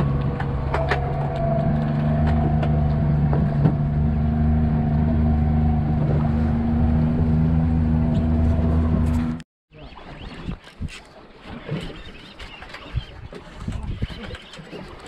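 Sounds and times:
boat engine running: 0.0s - 9.4s.

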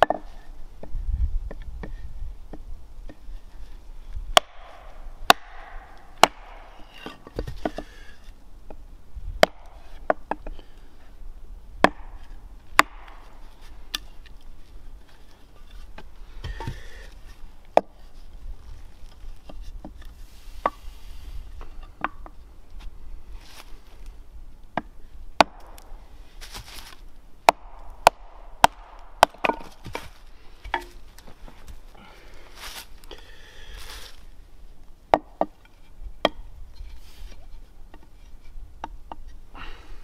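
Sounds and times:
hatchet chopping wood: 4.3s - 8.0s, 9.4s - 10.6s, 11.8s - 14.3s, 24.7s - 26.0s, 27.4s - 31.0s, 35.1s - 35.6s, 36.2s - 36.5s
soft rustling: 26.3s - 27.0s.

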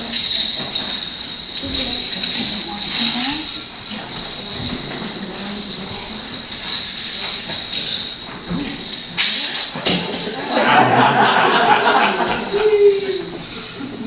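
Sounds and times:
rustling clatter: 0.0s - 10.8s
jingle bells shaken: 0.0s - 14.0s.

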